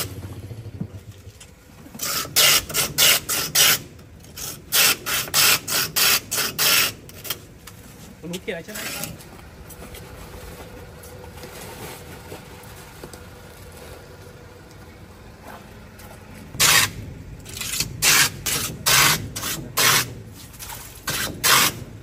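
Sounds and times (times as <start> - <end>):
ice scraping on ice plane: 2.0 - 3.8, 16.6 - 21.9.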